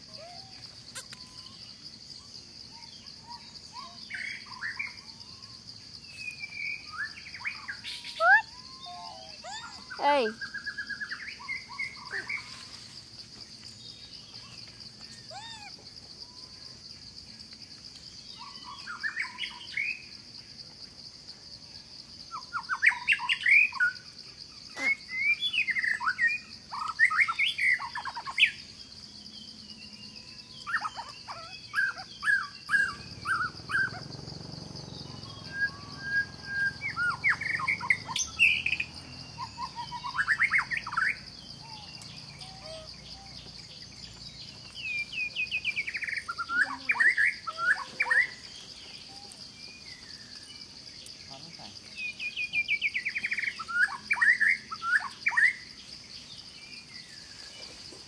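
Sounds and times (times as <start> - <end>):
bird chirps and calls: 6.1 - 12.8, 14.0 - 16.5, 18.3 - 20.0, 24.6 - 28.7, 29.7 - 34.2, 34.8 - 55.7
high-pitched insect drone: 18.4 - 55.8.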